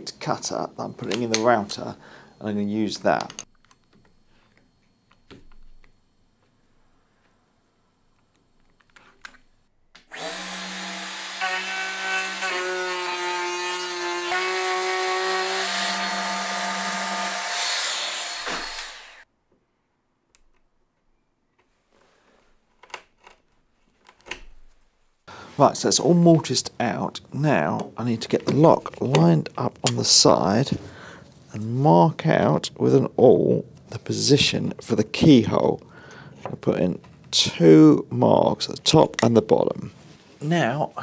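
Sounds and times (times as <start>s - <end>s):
router whining while cutting wood: 10.1s - 19.2s.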